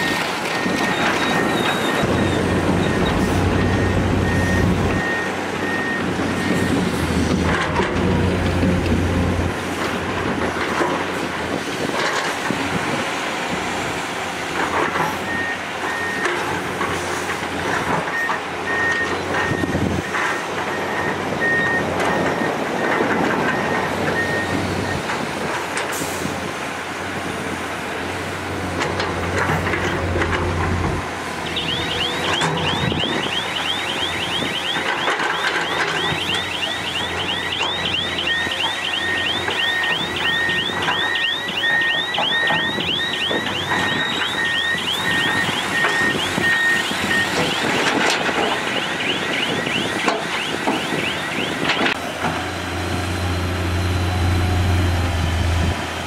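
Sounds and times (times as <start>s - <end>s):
electronic warning beeps: 0.0s - 6.8s, 18.1s - 25.0s, 31.4s - 52.0s
diesel engine running: 0.0s - 56.0s
fast chirping alarm: 31.4s - 34.8s, 35.4s - 47.7s.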